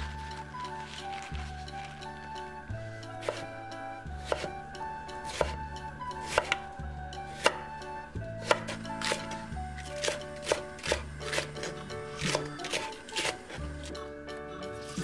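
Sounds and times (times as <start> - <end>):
knife chopping on wooden board: 3.2 - 3.5, 4.2 - 4.6, 5.2 - 5.6, 6.2 - 6.7, 7.3 - 7.7, 8.4 - 13.6.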